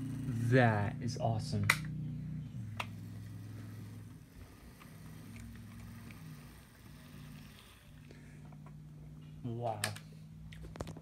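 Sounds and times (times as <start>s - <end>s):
model train motor humming: 2.2s - 8.2s.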